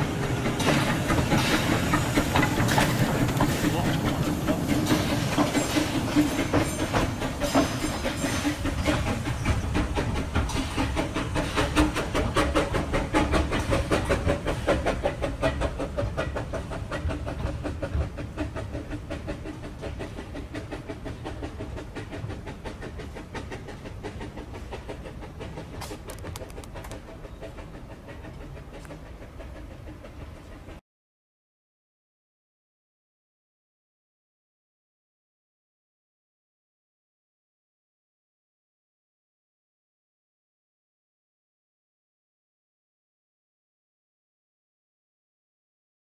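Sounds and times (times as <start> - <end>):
steam locomotive chuffing: 0.0 - 30.8
train rumbling over track: 0.0 - 30.8.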